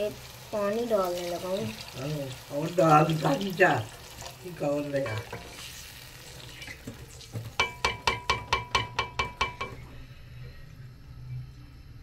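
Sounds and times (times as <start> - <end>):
faint sizzle: 0.0 - 12.0
spoon tapping pan rim: 7.6 - 9.9.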